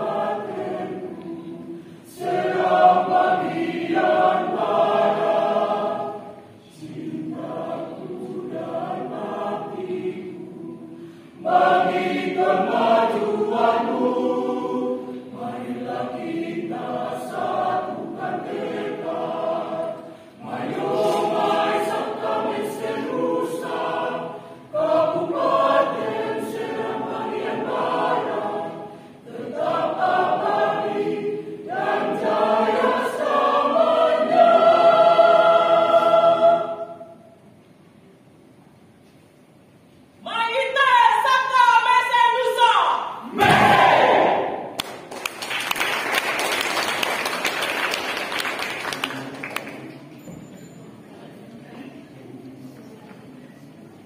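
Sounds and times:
mixed choir singing: 0:00.0 - 0:37.4, 0:43.0 - 0:44.8.

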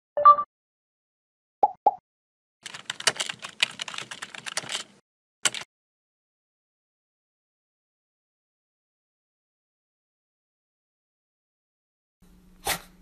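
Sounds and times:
keyboard key clicks: 0:05.5 - 0:05.7.

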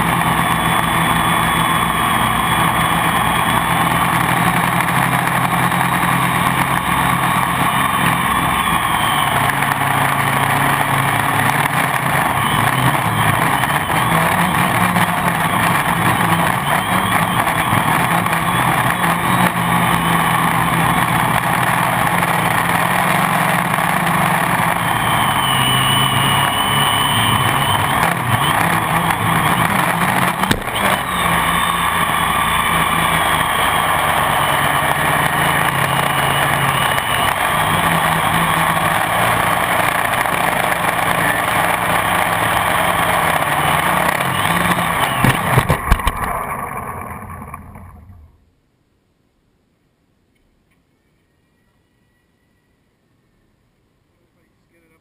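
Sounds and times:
drone propellers whirring: 0:00.0 - 0:48.4
high motor whine: 0:00.0 - 0:48.4.

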